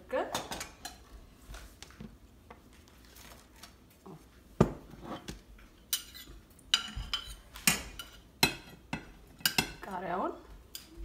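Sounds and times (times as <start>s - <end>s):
dishes clinking: 4.6s - 9.8s.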